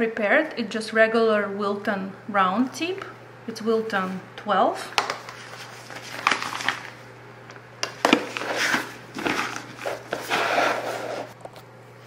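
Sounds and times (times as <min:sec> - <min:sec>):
plastic bag rustling and crinkling: 0:05.2 - 0:07.0, 0:08.0 - 0:11.4.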